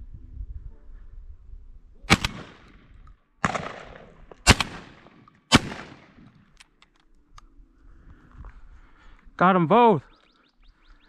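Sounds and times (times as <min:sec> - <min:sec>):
shotgun shots with echo: 0:02.1 - 0:06.3.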